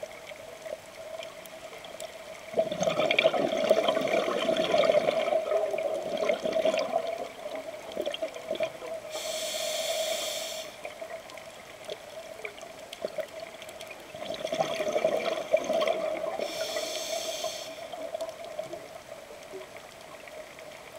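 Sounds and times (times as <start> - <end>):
exhaled bubbles rushing: 2.5 - 8.9, 14.1 - 16.5
regulator inhalation hiss: 9.1 - 10.9, 16.4 - 17.9.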